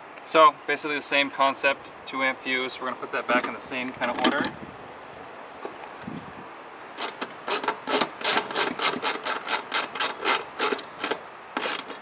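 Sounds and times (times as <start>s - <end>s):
screwdriver scraping strokes: 7.0s - 12.0s.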